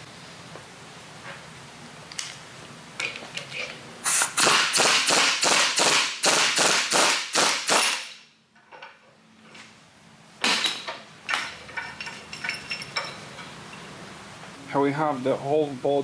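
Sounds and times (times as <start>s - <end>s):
impact wrench hammering: 4.1s - 8.3s.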